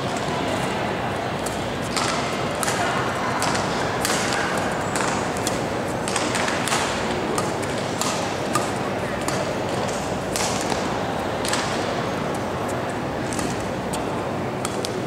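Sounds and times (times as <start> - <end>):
murmur of spectators: 0.0 - 15.0
rackets striking shuttlecock: 1.4 - 12.4.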